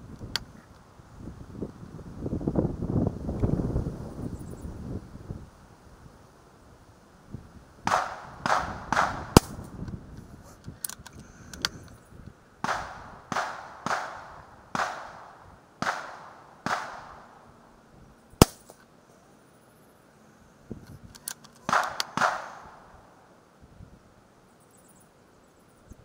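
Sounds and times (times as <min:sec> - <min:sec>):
air rifle dull reports: 0:07.8 - 0:17.6, 0:20.7 - 0:23.1
air rifle sharp cracks: 0:07.9 - 0:09.8, 0:12.6 - 0:17.4, 0:18.4 - 0:18.9, 0:21.1 - 0:22.9.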